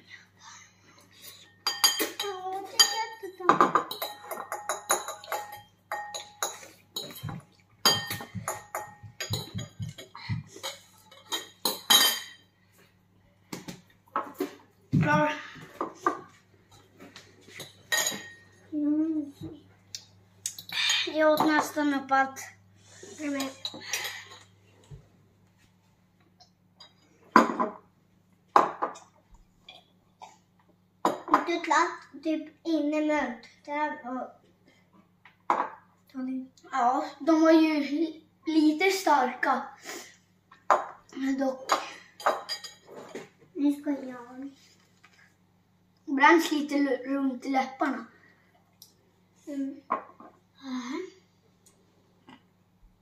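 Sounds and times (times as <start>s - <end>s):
cutlery clinking on ceramic bowls: 1.6s - 12.5s, 17.5s - 18.5s, 26.8s - 27.8s, 41.7s - 43.3s
child's voice: 2.2s - 3.7s, 15.0s - 15.8s, 18.7s - 19.6s, 20.8s - 23.7s, 31.4s - 34.4s, 36.1s - 39.8s, 41.1s - 41.7s, 43.6s - 44.6s, 46.1s - 48.1s, 49.4s - 49.9s, 50.6s - 51.2s.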